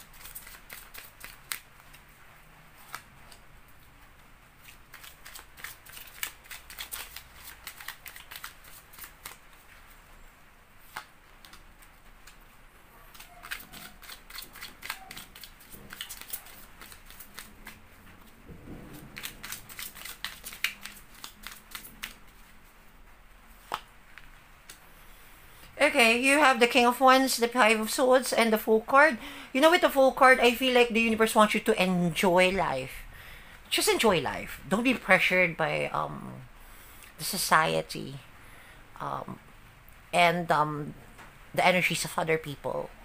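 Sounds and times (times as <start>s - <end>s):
cards shuffled and laid down: 23.6s - 24.8s.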